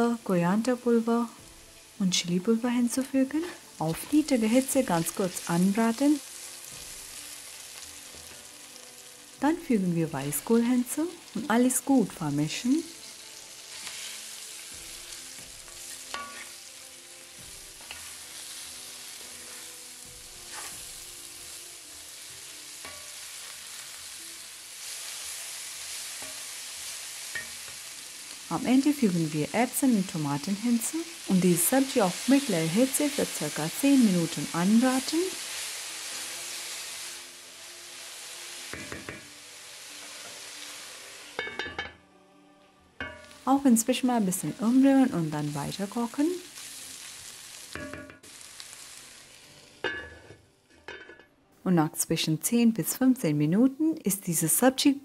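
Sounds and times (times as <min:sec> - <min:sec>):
cabbage sizzling in hot oil: 0:00.0 - 0:41.8, 0:43.0 - 0:50.6
spatula scraping pan: 0:20.4 - 0:20.9.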